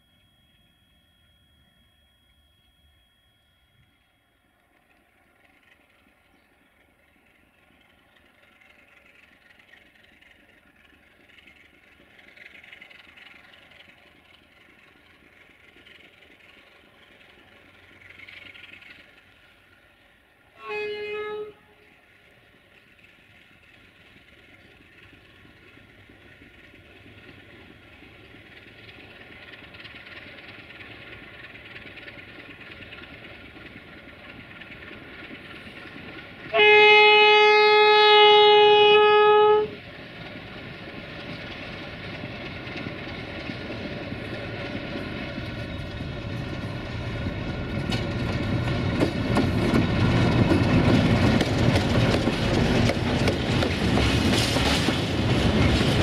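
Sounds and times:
diesel locomotive engine running: 0.0 - 56.0
locomotive horn blast: 20.6 - 21.9, 36.5 - 39.8.

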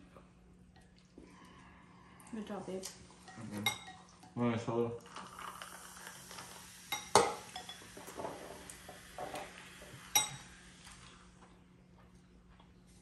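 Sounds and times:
soda pouring over ice: 5.0 - 11.3
glass and can clinking: 6.9 - 8.5, 10.1 - 10.5.

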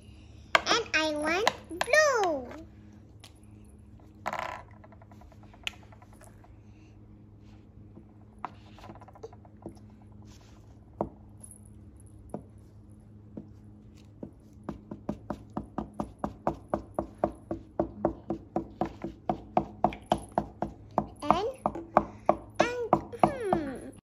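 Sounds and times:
marker tips tapping on paper: 14.2 - 23.6.

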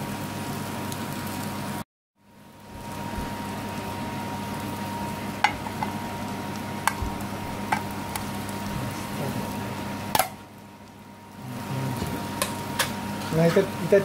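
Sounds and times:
onions sizzling in oil: 0.0 - 14.0.

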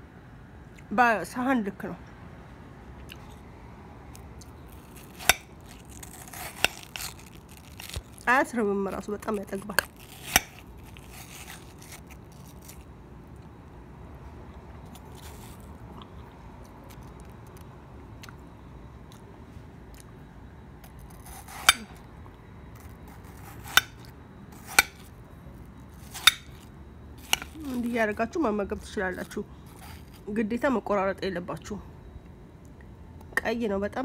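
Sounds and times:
spoon scraping watermelon flesh: 4.4 - 12.9, 14.8 - 15.7, 20.8 - 22.0, 22.7 - 25.2, 25.8 - 28.2, 28.8 - 30.4.

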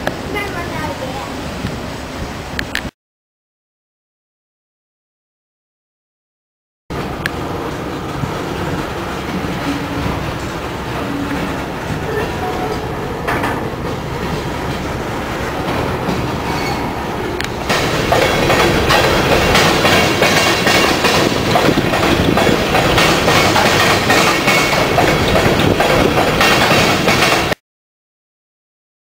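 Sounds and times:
train rumble: 0.0 - 2.8, 6.9 - 27.6
train wheels clacking over rail joints: 6.9 - 27.6.

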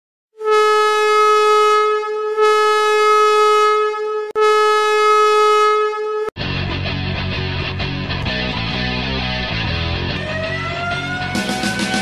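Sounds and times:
goal horn blasts: 0.4 - 6.3.

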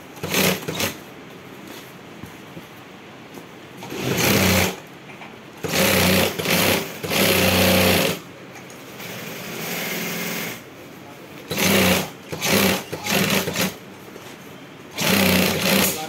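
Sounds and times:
industrial sewing machine stitching: 0.2 - 1.0, 3.8 - 4.8, 5.6 - 8.2, 11.5 - 13.8, 14.9 - 16.0.

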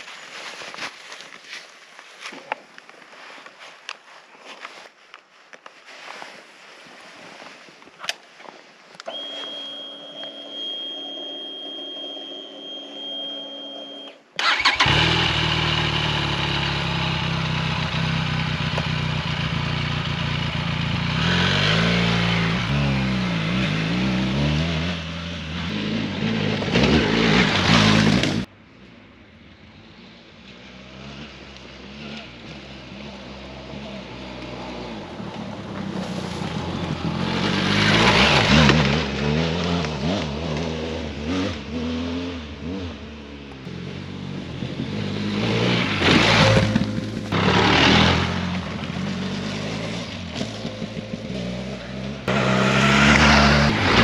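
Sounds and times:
high whine: 9.0 - 14.3
motorcycle engine revving: 14.4 - 28.5, 30.0 - 54.0.

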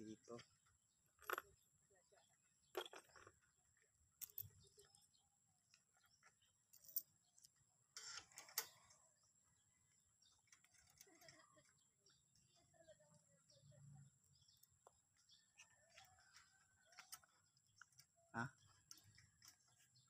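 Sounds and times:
faint metal clicks: 14.4 - 20.0.

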